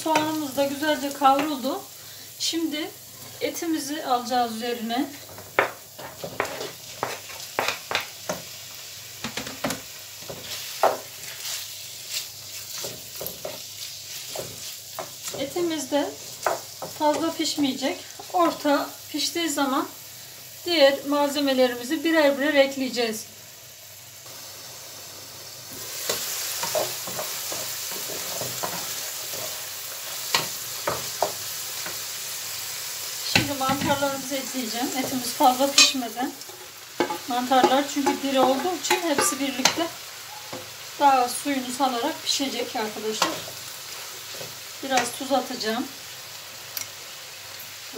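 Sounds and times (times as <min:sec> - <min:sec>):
chicken sizzling in frying pan: 0:00.0 - 0:47.9
wooden spoon scraping and knocking pan: 0:05.2 - 0:08.5, 0:09.2 - 0:17.4, 0:34.9 - 0:39.9
wooden spoon scraping pan: 0:05.3 - 0:08.0.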